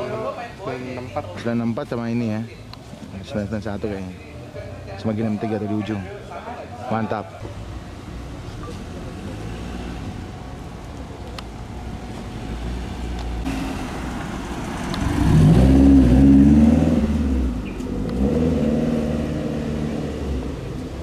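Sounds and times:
car engine revving past: 8.2 - 10.5, 11.9 - 21.0.

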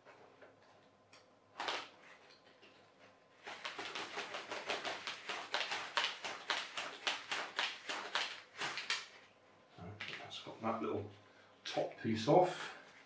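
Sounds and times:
rapid sharp clicks and taps: 3.4 - 9.2.

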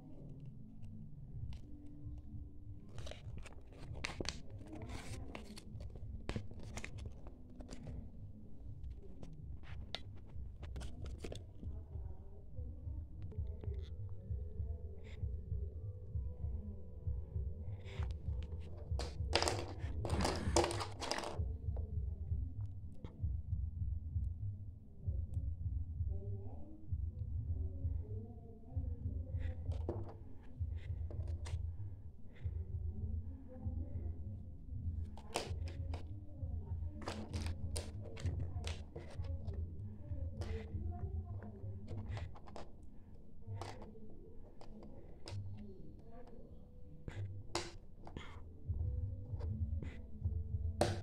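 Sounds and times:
steady low hum: 0.0 - 51.0
plastic toy pieces clicking: 19.0 - 21.4.

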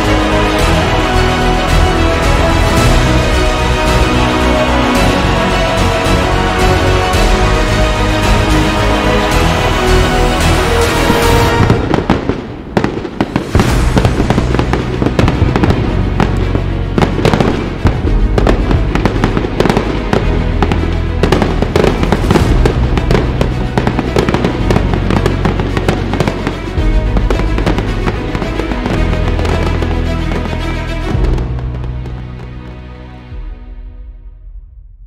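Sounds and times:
music with steady bass: 0.0 - 12.1, 13.5 - 34.9
fireworks bangs and crackles: 0.0 - 33.5.

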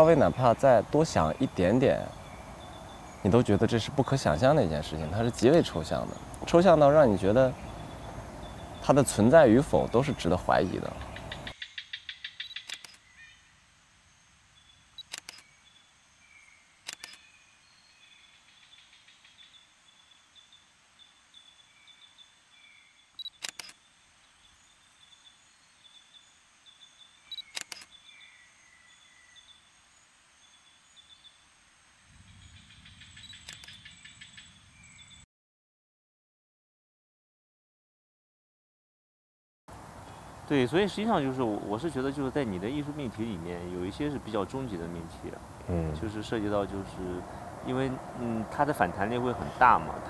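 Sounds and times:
high chirping with gliding calls: 0.0 - 13.5, 40.0 - 50.0
sharp clicks: 12.4 - 13.0, 15.0 - 15.5, 16.8 - 17.2, 23.2 - 23.8, 27.3 - 27.9, 33.3 - 33.8.

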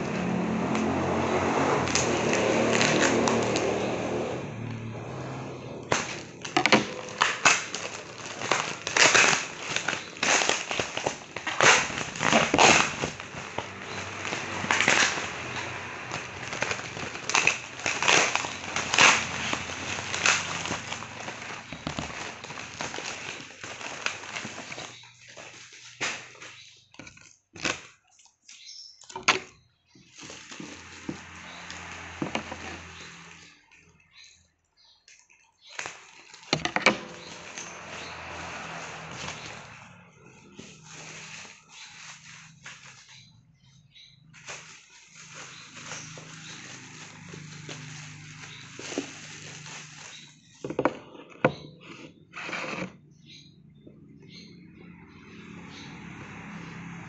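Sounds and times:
plastic packaging crinkling: 0.8 - 50.8.

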